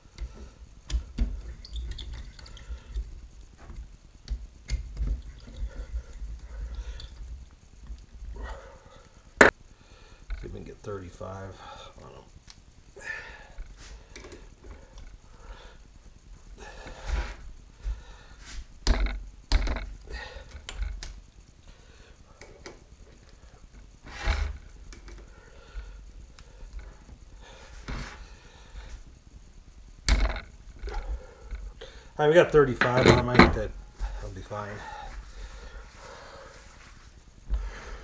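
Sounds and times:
metal knocks and clunks: 0:18.8 - 0:19.9, 0:30.1 - 0:31.0, 0:32.8 - 0:33.7.

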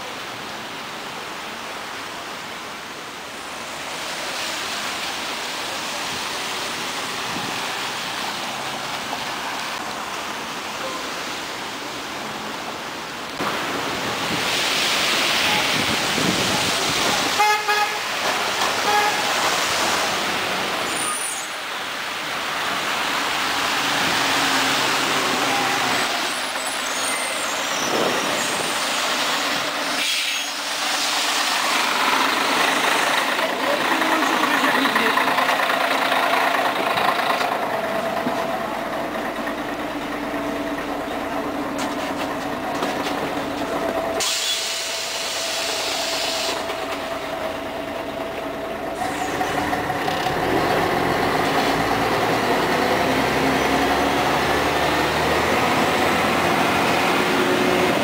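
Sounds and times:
tyre hiss on wet road: 0:00.0 - 0:37.3, 0:41.6 - 0:48.2, 0:48.9 - 0:49.6
bus brakes squealing: 0:20.9 - 0:21.6, 0:25.4 - 0:29.1, 0:29.9 - 0:31.9, 0:44.2 - 0:46.7, 0:49.0 - 0:49.7.

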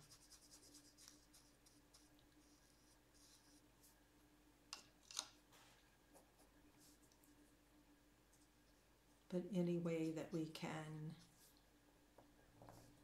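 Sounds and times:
paintbrush strokes on paper: 0:00.0 - 0:04.1, 0:05.5 - 0:07.2, 0:09.9 - 0:11.7
faint steady hum: 0:00.0 - 0:13.0.

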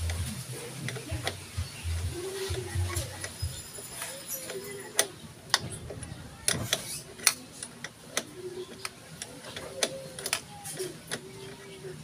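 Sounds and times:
wrench clicking on bolt: 0:06.4 - 0:11.3.

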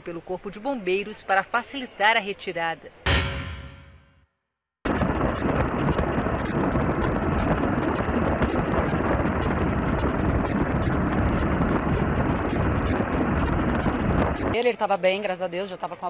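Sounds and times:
helicopter rotor and engine drone: 0:04.9 - 0:14.6
high whine: 0:04.9 - 0:14.6.

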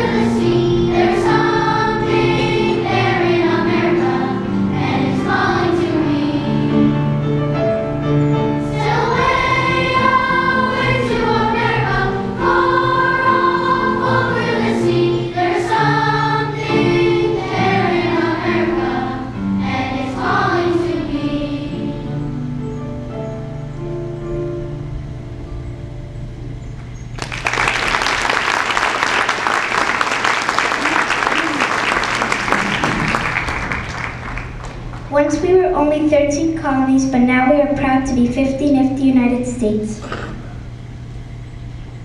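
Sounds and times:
children's choir singing: 0:00.0 - 0:07.3, 0:08.5 - 0:22.4.

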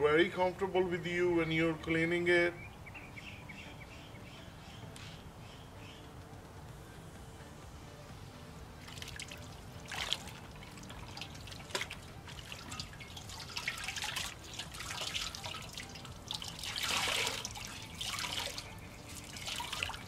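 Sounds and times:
cloth wrung out over water: 0:08.8 - 0:20.0
water splashing and dripping: 0:08.8 - 0:20.0.

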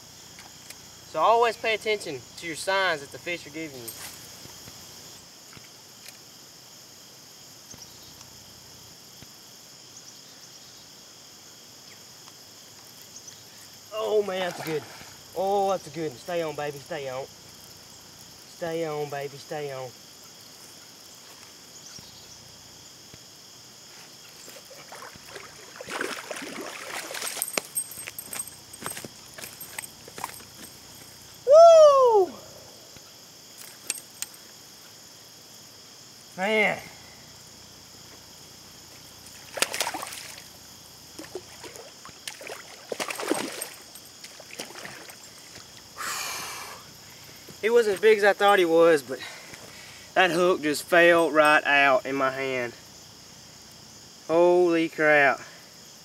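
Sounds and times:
crickets chirping: 0:00.0 - 0:56.0
fish splashing in water: 0:24.6 - 0:27.7, 0:39.3 - 0:40.5, 0:41.2 - 0:45.6.

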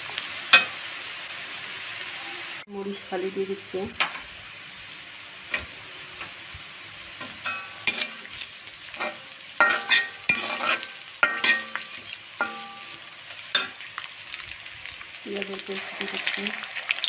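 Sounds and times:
onions sizzling in oil: 0:00.0 - 0:17.0
metal spatula scraping pan: 0:07.2 - 0:13.8
pan ringing: 0:07.4 - 0:07.8, 0:11.2 - 0:13.7.

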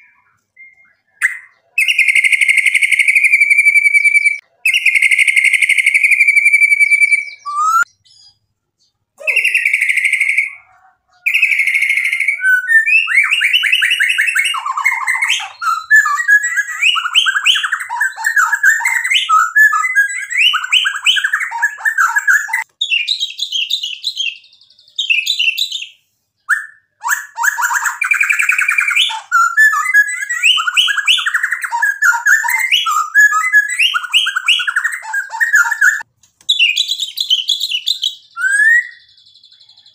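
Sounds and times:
bird singing whistled notes: 0:00.0 - 0:39.9.

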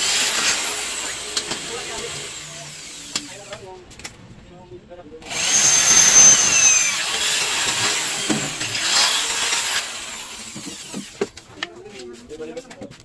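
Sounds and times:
electric drill boring metal: 0:00.0 - 0:03.6, 0:05.2 - 0:11.2.

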